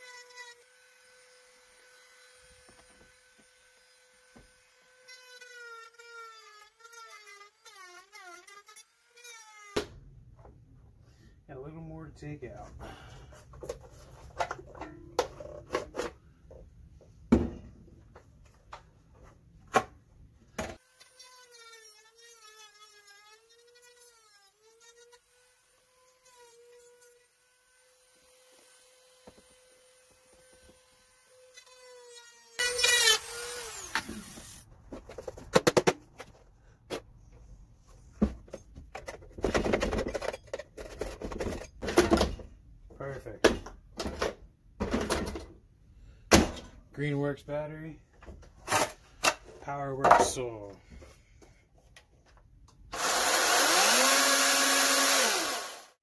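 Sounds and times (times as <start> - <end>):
rotary tool grinding: 20.8 - 34.7, 52.9 - 56.0.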